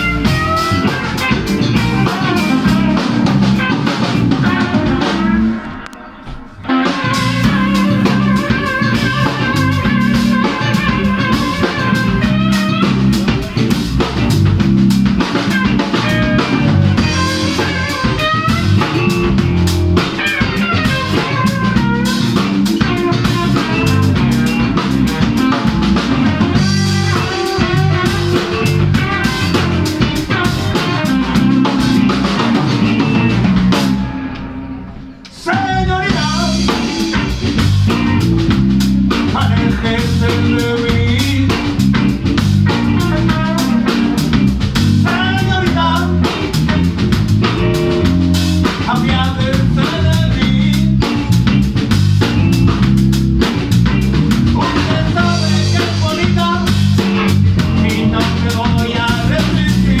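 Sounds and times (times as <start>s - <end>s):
bass guitar: 0.0s - 60.0s
drum kit: 0.0s - 60.0s
electric guitars: 0.0s - 60.0s
person singing: 35.2s - 38.2s, 39.2s - 41.8s, 45.0s - 46.6s, 48.7s - 51.3s, 54.6s - 60.0s.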